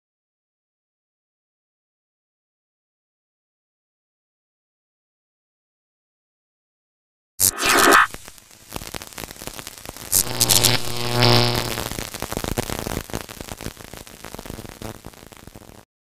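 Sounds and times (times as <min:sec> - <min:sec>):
buzzing tone: 0:07.4 - 0:08.4, 0:10.0 - 0:13.3
crackling glitch noise: 0:07.4 - 0:15.9.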